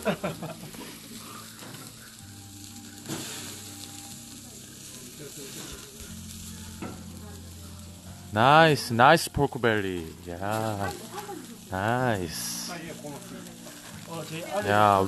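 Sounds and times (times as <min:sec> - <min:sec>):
meat sizzling on grill: 0:00.0 - 0:15.0.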